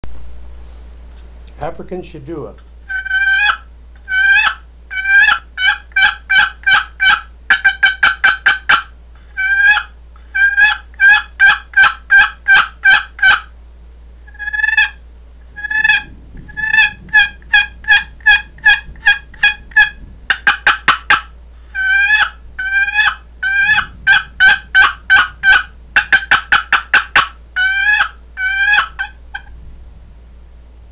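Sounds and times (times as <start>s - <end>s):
box turkey call yelping: 2.8s - 13.5s, 14.2s - 29.5s.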